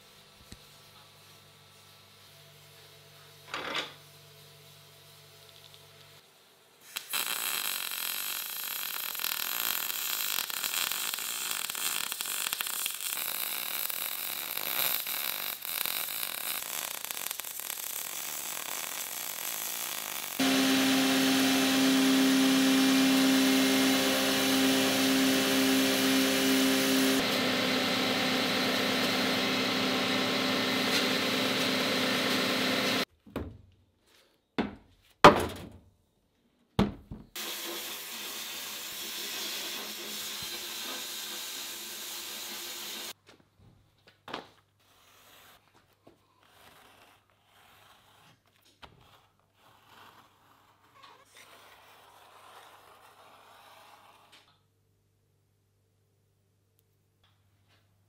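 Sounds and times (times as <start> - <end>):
welder crackling and spitting: 6.8 - 27.4, 37.4 - 43.2
machine running with whine: 20.4 - 33.0.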